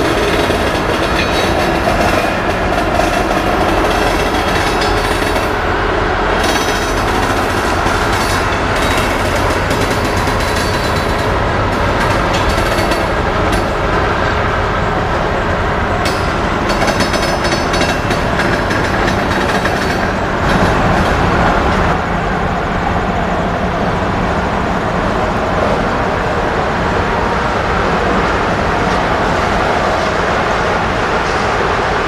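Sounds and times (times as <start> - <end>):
clicks over rail joints: 0.0 - 5.6, 6.4 - 13.8
train wheels rumbling on rails: 0.0 - 32.0.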